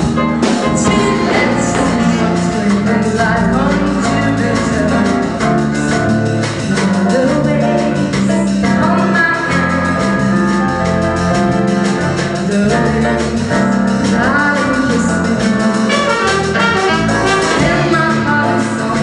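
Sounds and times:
live jazz band playing: 0.0s - 19.0s
woman singing into a microphone: 0.7s - 5.8s, 6.6s - 10.3s, 12.4s - 16.1s, 17.5s - 19.0s.

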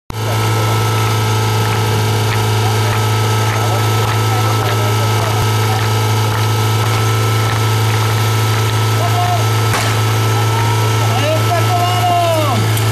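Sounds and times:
pump engine idling: 0.1s - 12.9s.

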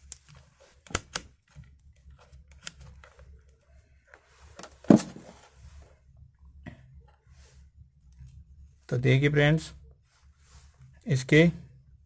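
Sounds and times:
dull knock of object set down: 4.8s - 5.3s.

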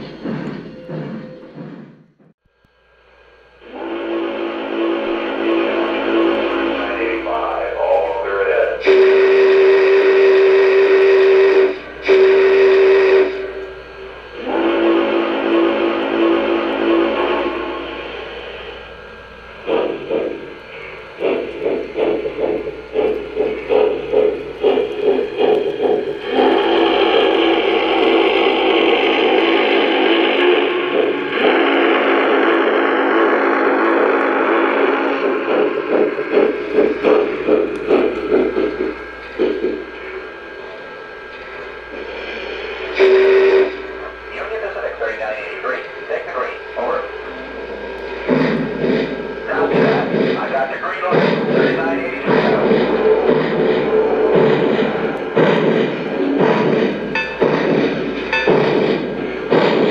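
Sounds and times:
model steam train chuffing: 0.0s - 59.9s
steam whistle blasts: 3.6s - 7.4s, 8.8s - 18.0s, 26.2s - 35.1s, 42.8s - 44.2s.

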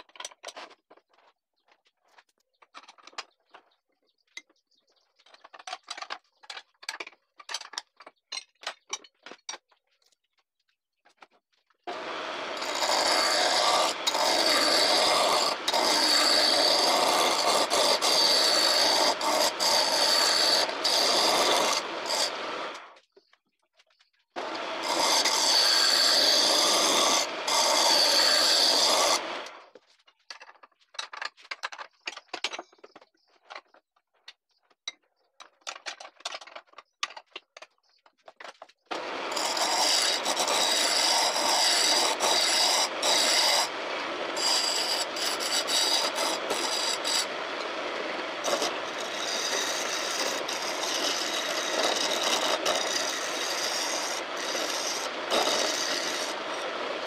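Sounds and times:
chisel rasping on spinning wood: 11.9s - 22.8s, 24.4s - 29.5s, 38.9s - 57.0s.

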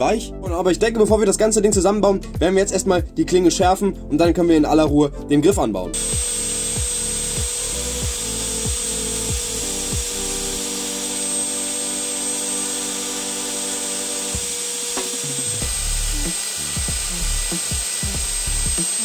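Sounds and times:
background music with beat: 0.0s - 19.0s
belt sander running: 6.0s - 19.0s.

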